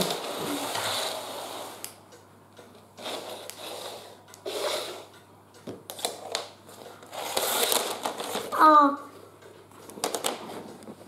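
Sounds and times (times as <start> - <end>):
plastic track pieces clicking: 5.9 - 8.5.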